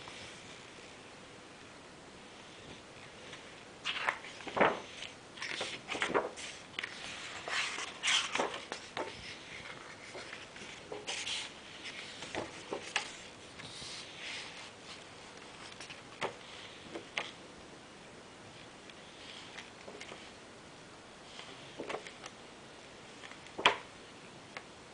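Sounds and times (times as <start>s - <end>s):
book pages turning: 3.3s - 17.4s, 18.9s - 20.4s, 21.3s - 22.4s, 23.2s - 23.9s.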